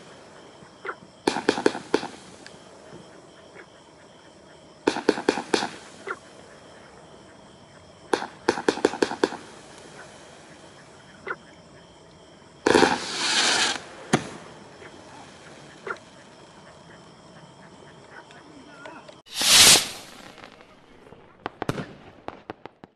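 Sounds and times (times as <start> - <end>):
firework reports: 1.2 - 2.7, 4.8 - 6.4, 8.1 - 10.6, 12.6 - 15.8, 19.3 - 22.6
firework crackling hiss: 1.2 - 2.9, 4.8 - 6.4, 8.1 - 10.9, 12.6 - 15.8, 19.3 - 22.8.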